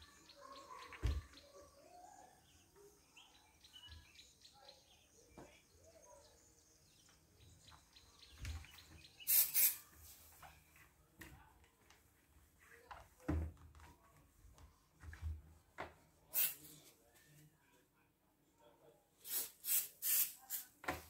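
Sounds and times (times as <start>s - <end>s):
small birds chirping: 0.0s - 9.9s
loud hissing bursts: 9.3s - 9.8s, 19.2s - 20.6s.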